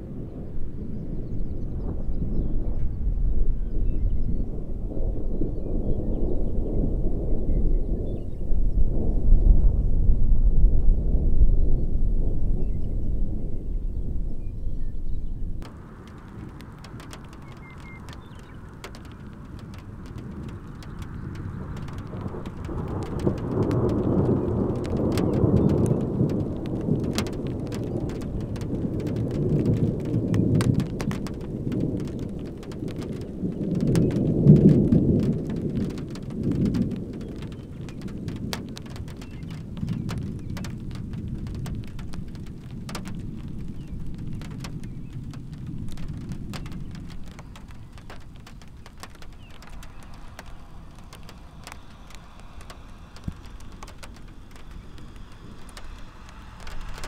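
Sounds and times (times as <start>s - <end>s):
steady rain: 0.0s - 57.0s
thunder rumbling: 0.0s - 57.0s
raindrop ticks: 15.6s - 57.0s.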